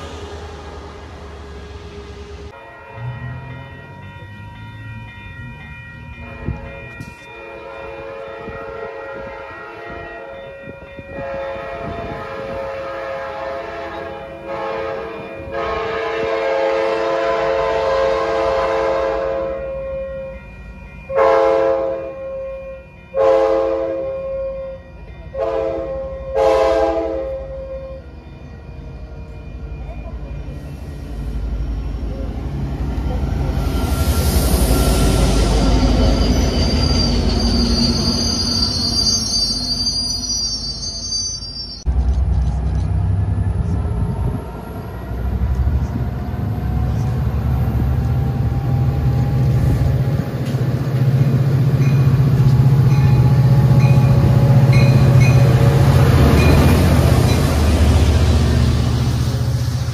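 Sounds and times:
locomotive air horn blasts: 0:11.2 - 0:19.7, 0:21.1 - 0:22.2, 0:23.2 - 0:24.1, 0:25.4 - 0:27.7.

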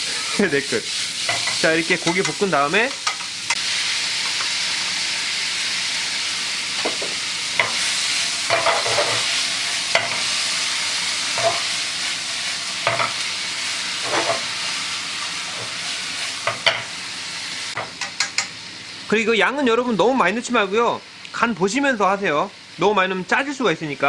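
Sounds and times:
meat sizzling in a frying pan: 0:00.0 - 0:24.0
chopsticks knocking and scraping pan: 0:08.5 - 0:09.2, 0:12.8 - 0:13.2, 0:14.0 - 0:14.4.

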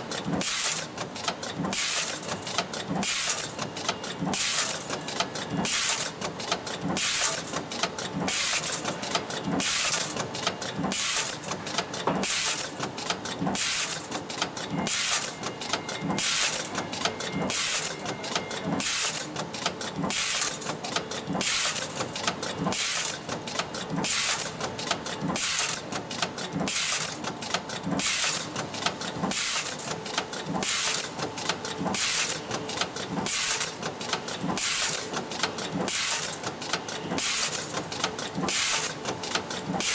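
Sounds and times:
press hissing and clattering: 0:00.2 - 0:00.9, 0:01.5 - 0:03.6, 0:04.3 - 0:05.0, 0:07.0 - 0:07.7, 0:08.3 - 0:12.8, 0:13.5 - 0:14.2, 0:14.8 - 0:15.4, 0:16.1 - 0:16.8, 0:17.5 - 0:18.0, 0:18.8 - 0:19.4, 0:20.0 - 0:20.8, 0:21.4 - 0:24.6, 0:25.2 - 0:39.9.

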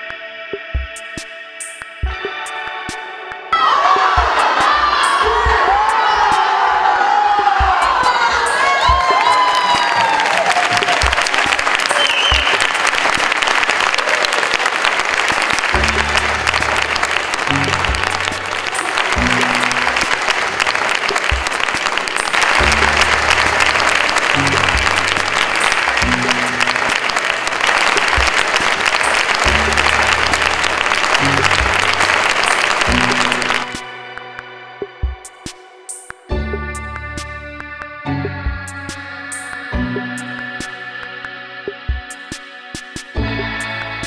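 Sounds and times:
background music with bass line: 0:00.0 - 0:09.4, 0:14.8 - 0:44.0
audience applauding: 0:03.7 - 0:34.2.

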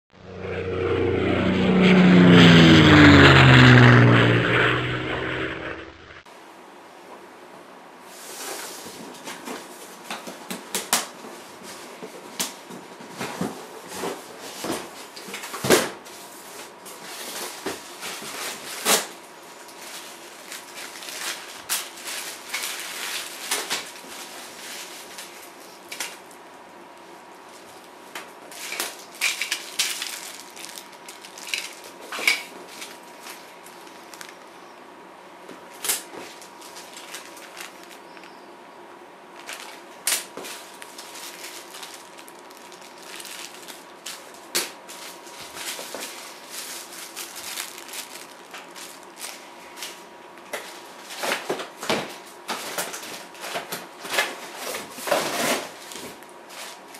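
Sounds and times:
plastic bags crinkling: 0:17.2 - 0:26.3, 0:28.5 - 0:34.5, 0:35.6 - 0:38.3, 0:39.3 - 0:50.0.

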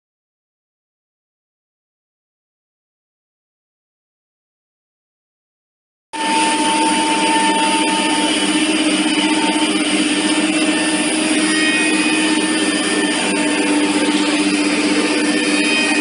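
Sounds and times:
cutting and dust extraction noise: 0:06.2 - 0:16.0
router spindle whine: 0:06.2 - 0:16.0.

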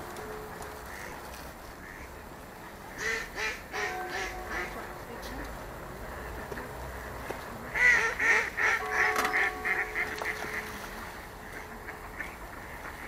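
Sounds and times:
duck quacking: 0:06.2 - 0:10.8.

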